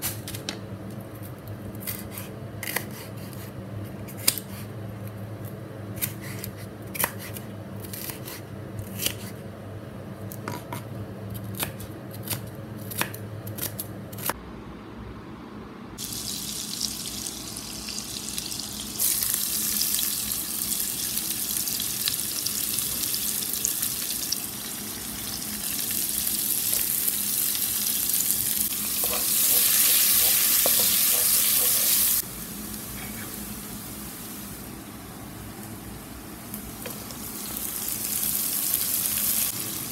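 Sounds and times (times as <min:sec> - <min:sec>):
onion sizzling in butter: 0:16.0 - 0:39.9.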